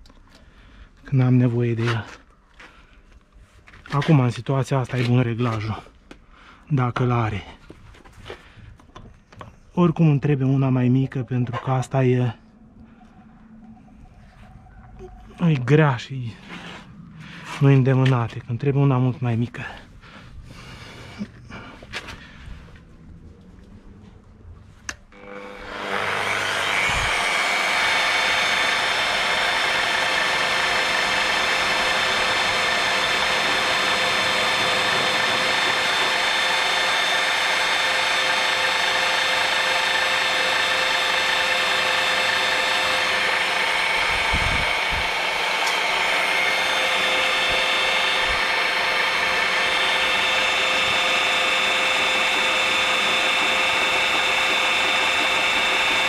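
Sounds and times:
drill motor whine: 25.1s - 56.0s.

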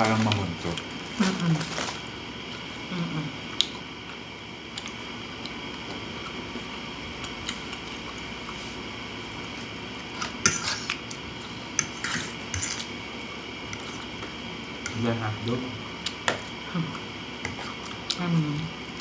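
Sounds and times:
fork scraping ceramic plate: 10.4s - 11.0s, 11.8s - 12.9s.

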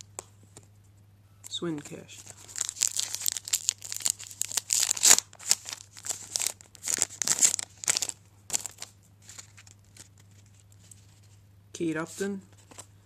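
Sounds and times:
wrapper tearing and crinkling: 2.2s - 10.6s.

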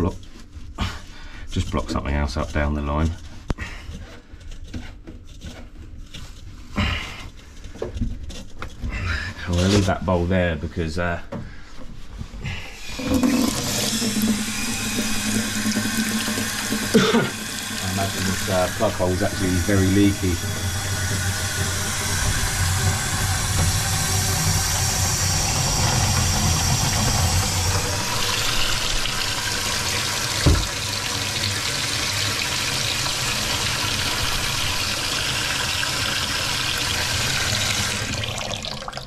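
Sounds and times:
tap running into steel sink: 25.8s - 32.2s
thump: 30.4s - 30.7s.

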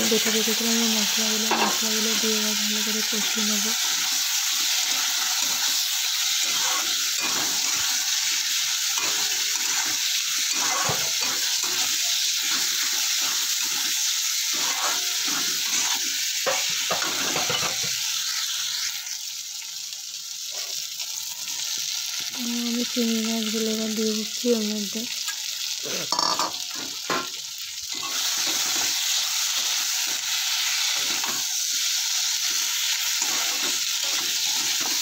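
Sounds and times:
potatoes sizzling in a pan: 0.0s - 35.0s
metal spatula scraping a pan: 3.8s - 18.0s, 27.9s - 31.6s, 32.4s - 35.0s.

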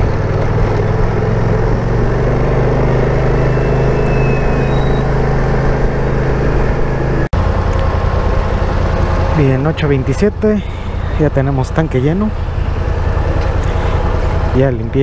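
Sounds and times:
scooter engine running: 0.0s - 11.2s
road and wind noise: 0.0s - 15.0s.

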